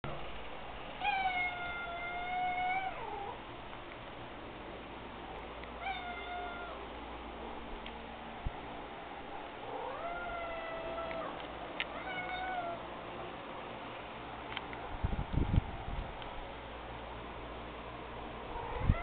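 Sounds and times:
cat meowing: 1.0s - 3.4s, 5.8s - 6.8s, 9.7s - 12.8s, 18.6s - 19.0s.

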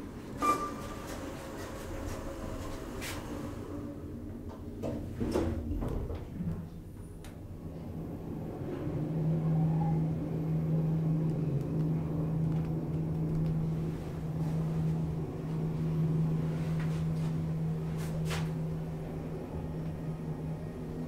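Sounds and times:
elevator low hum: 0.0s - 21.0s.

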